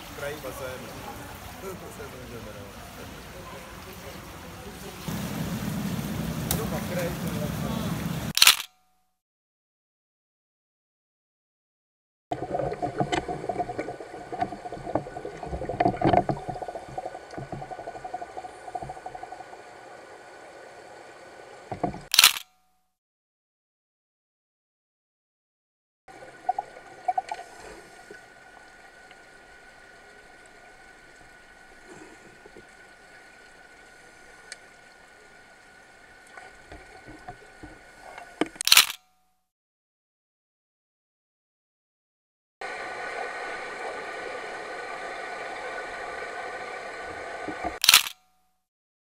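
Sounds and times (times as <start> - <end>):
underwater hum: 4.6 - 8.3, 12.3 - 22.1, 26.1 - 38.6, 42.6 - 47.8
underwater hiss: 5.1 - 8.3, 26.5 - 34.9
knocks underwater: 12.3 - 19.3
bubbling pops: 12.3 - 19.5
underwater bubbling and gurgling: 12.3 - 22.1, 26.1 - 38.6, 42.6 - 47.8.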